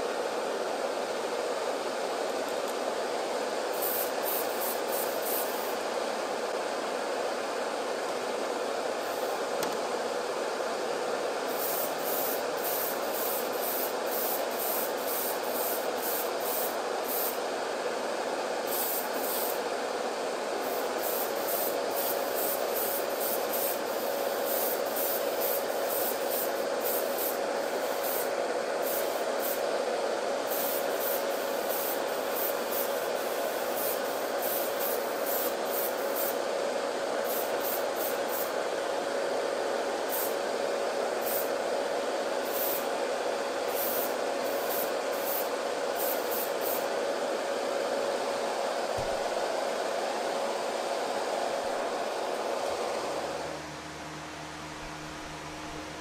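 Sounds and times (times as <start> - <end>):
exhaust fan hum: 0.0 - 56.0
airbrush spraying bursts of air: 3.6 - 5.9, 9.0 - 9.5, 11.4 - 17.6, 18.6 - 19.8, 20.5 - 29.8, 30.4 - 38.7, 40.0 - 41.7, 42.4 - 47.0.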